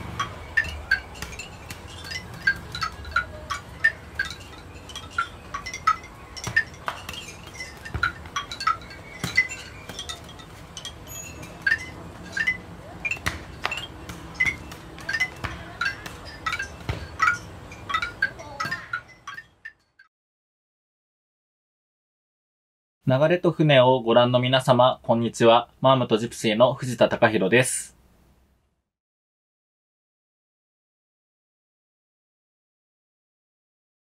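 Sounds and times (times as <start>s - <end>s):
light tinkling clinks: 0.1s - 19.6s.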